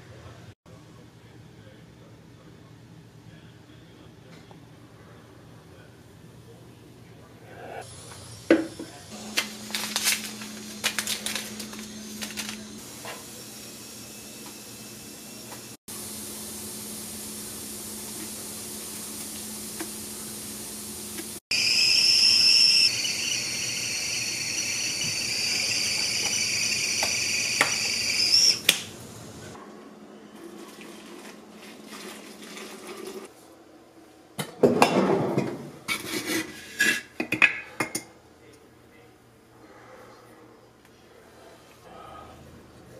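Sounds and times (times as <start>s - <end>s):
kettle whistling: 10.6s - 28.8s.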